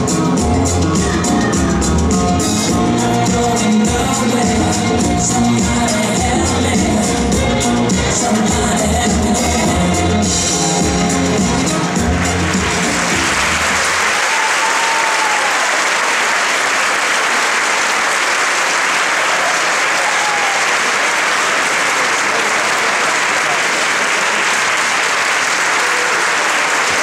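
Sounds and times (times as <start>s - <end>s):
dance music: 0.0s - 15.6s
audience applauding: 11.6s - 27.0s.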